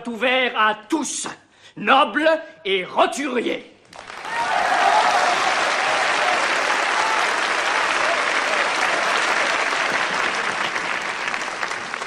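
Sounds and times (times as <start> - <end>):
crowd applauding: 3.9 - 12.0.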